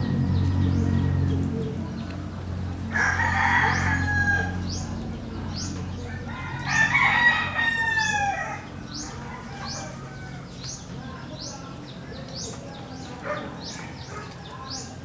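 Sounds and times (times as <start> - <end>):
rooster crowing: 2.9 - 4.6, 6.0 - 10.7.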